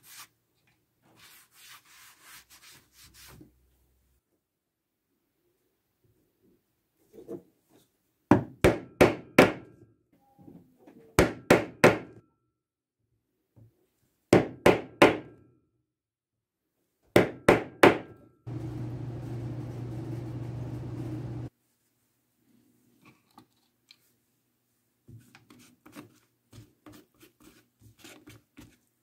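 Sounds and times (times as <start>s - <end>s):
steady low hum: 18.5s - 21.5s.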